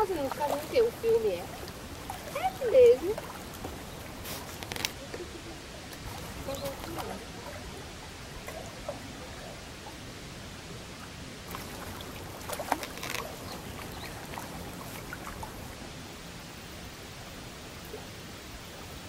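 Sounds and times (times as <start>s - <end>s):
water lapping against rocks: 0.0s - 9.8s, 11.4s - 15.9s.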